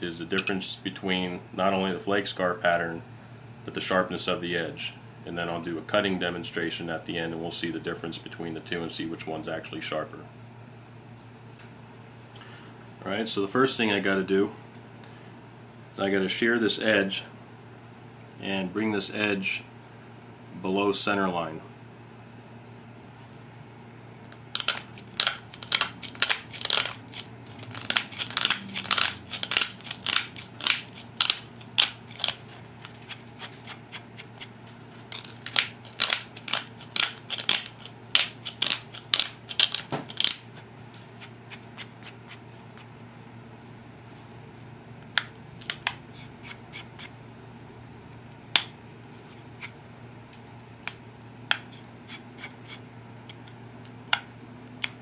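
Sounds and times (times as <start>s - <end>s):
sharp clicks of stone flaking: 24.6s - 34.4s, 35.1s - 40.5s.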